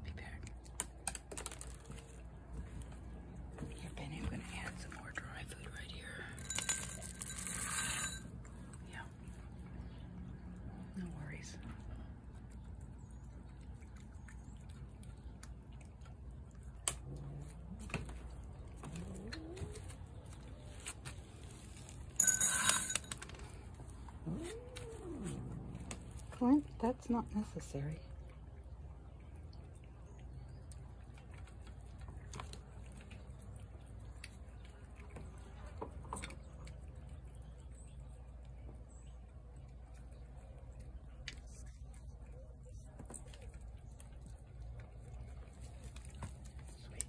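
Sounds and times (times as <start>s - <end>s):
cat chewing and licking: 0.0s - 7.1s, 8.2s - 22.2s, 23.1s - 47.0s.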